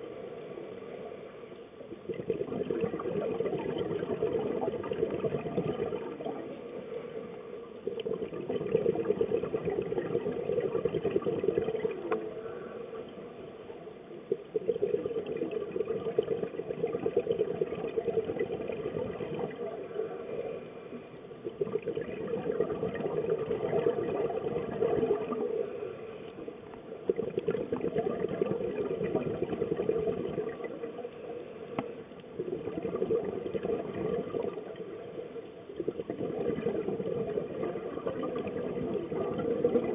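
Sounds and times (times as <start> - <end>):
scuba regulator bubbles: 0.0 - 39.9.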